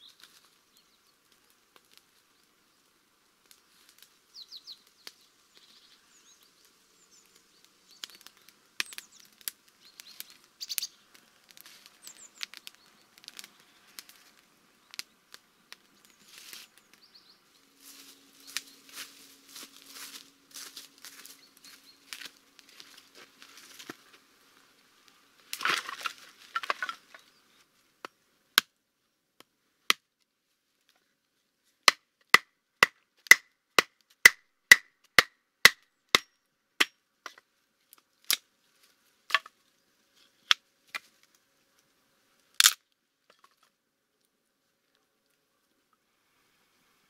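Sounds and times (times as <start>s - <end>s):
firewood set down with clatter: 25.5s - 27.2s.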